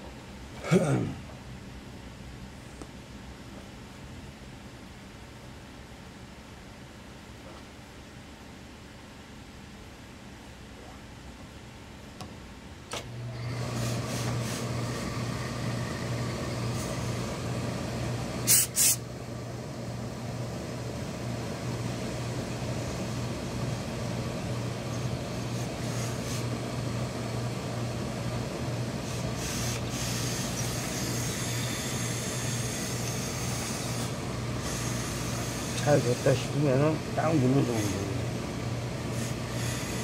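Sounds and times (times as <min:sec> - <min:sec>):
steam equipment humming: 0:13.0 - 0:40.0
steam bursts: 0:18.4 - 0:19.0.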